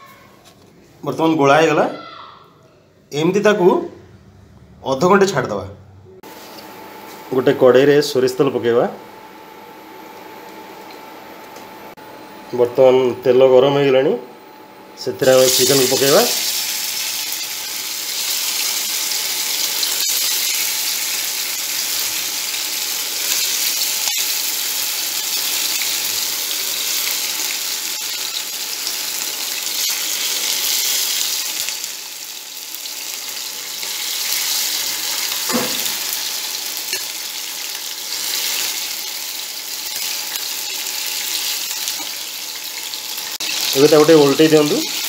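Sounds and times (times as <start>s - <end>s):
chicken sizzling in oil: 15.2s - 45.0s.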